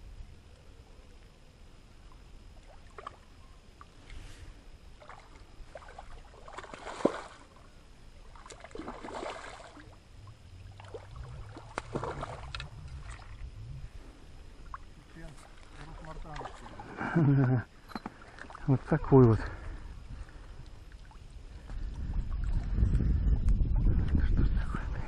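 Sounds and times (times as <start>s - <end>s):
fish splashing and thrashing: 5.0s - 7.6s, 8.2s - 13.6s, 14.6s - 16.9s
sharp water slap: 6.5s - 7.4s.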